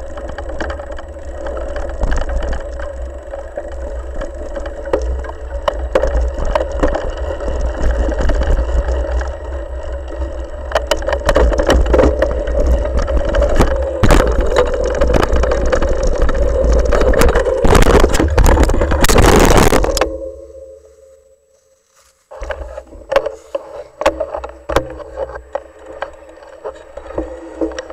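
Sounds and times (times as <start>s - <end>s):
bike frame rattling: 0.0s - 20.4s
low rumble with steady hum: 0.0s - 27.9s
tyres crunching through leaves: 12.2s - 27.6s.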